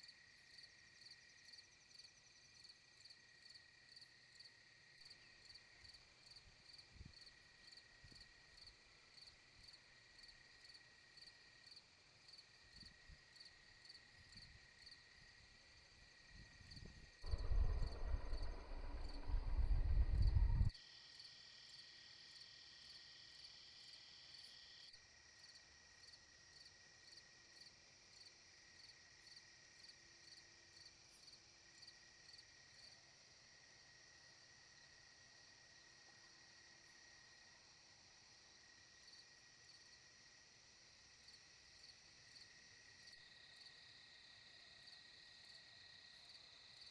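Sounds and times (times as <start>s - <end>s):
insects chirping: 0.1s - 46.9s
low wind rumble on microphone: 16.4s - 20.7s.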